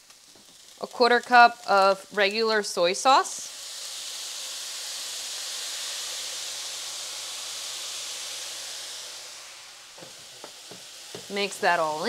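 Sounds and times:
sauce sizzling in a frying pan: 0.0 - 12.0.

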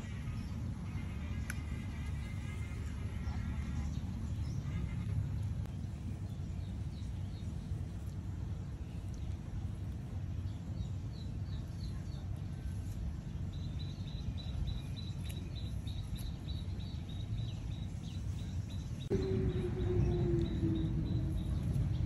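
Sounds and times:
steady low rumble: 0.0 - 22.0
motor drone: 19.1 - 22.0.

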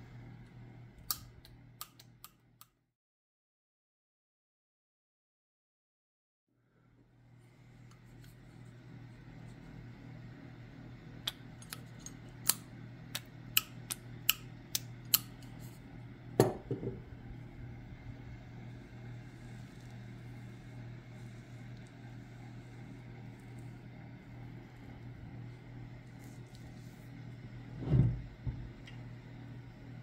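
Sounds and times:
steady low hum: 6.6 - 30.0.

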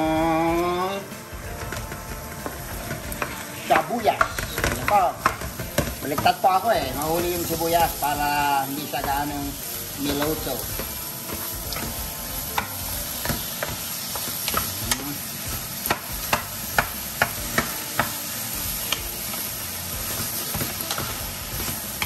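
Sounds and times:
meat and onion sizzling in a pan: 0.0 - 22.0
wooden spatula tapping and scraping pan: 1.6 - 18.2.

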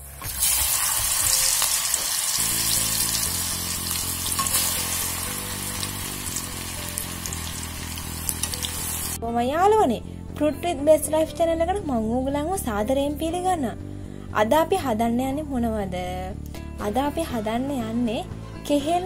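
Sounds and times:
fritters sizzling in hot oil: 0.1 - 9.2.

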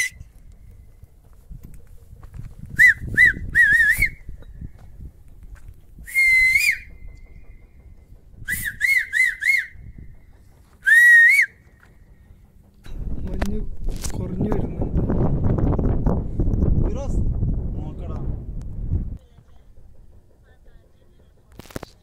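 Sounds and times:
wind buffeting microphone: 0.0 - 22.0
person whistling: 2.7 - 4.3, 6.0 - 7.1, 8.5 - 9.9, 10.8 - 11.6.

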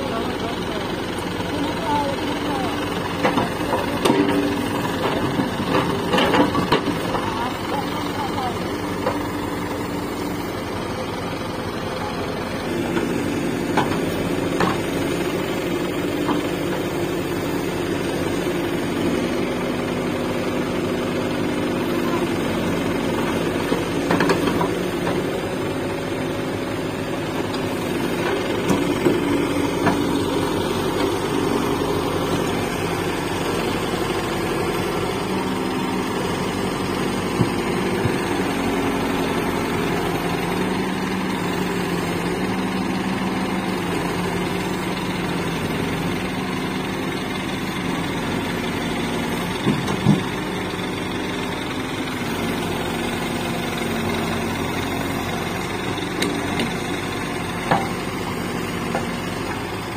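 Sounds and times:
diesel engine running: 0.0 - 59.9
short clunks: 37.3 - 38.3.

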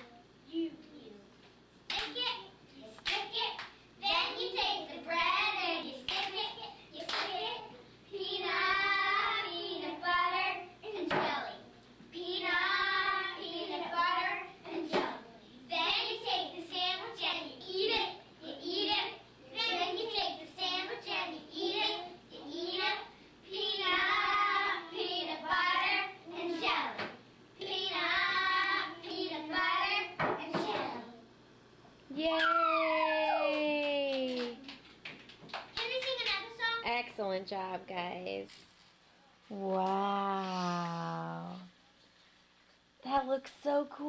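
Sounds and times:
hand clap: 1.9 - 2.4, 3.0 - 3.8, 6.1 - 6.4, 7.0 - 7.4, 33.2 - 36.5
girls singing together: 4.0 - 11.5, 12.2 - 31.1.

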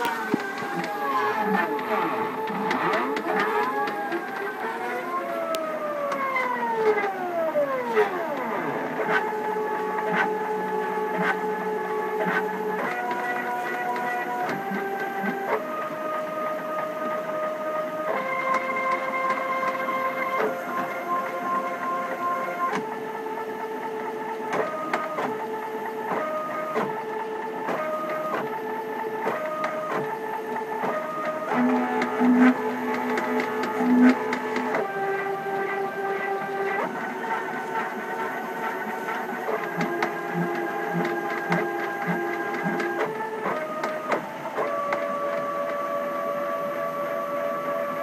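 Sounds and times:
stepper motors whining: 0.0 - 48.0.

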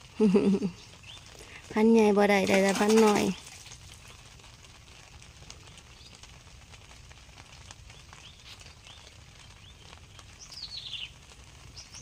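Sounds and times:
faint bird chirps: 8.0 - 11.1.

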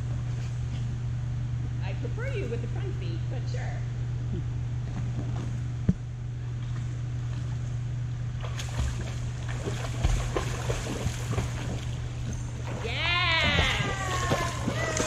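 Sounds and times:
low hum: 0.0 - 15.0
water splashing and lapping: 8.3 - 15.0.

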